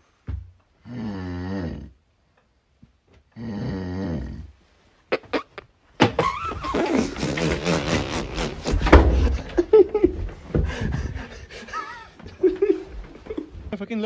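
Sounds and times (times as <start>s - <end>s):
man snoring: 0.8s - 2.0s, 3.4s - 4.5s.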